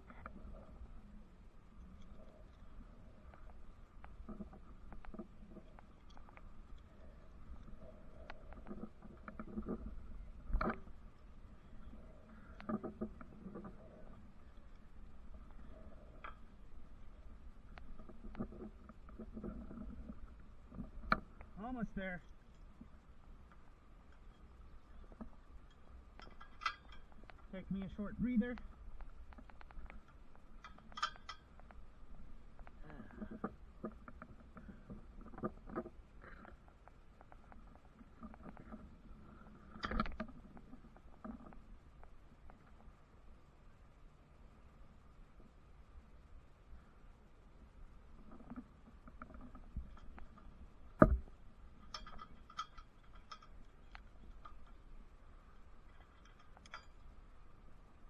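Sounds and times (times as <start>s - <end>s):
climbing hardware clinking on metal: 24.1s - 31.8s, 48.3s - 57.2s.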